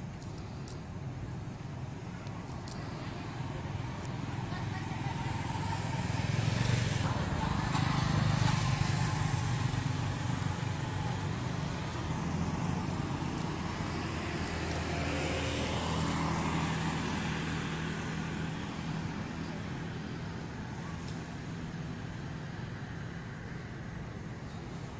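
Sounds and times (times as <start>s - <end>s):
faint road traffic: 0.0s - 24.9s
vehicle engine humming: 0.0s - 24.9s.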